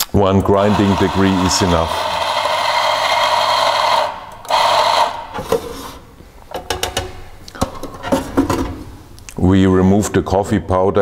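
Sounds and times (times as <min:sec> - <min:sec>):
coffee grinder motor grinding: 0:00.4 - 0:06.0.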